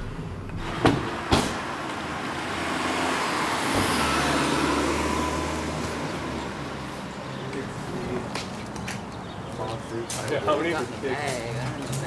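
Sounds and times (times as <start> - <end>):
car engine and tyres: 0.0 - 10.5.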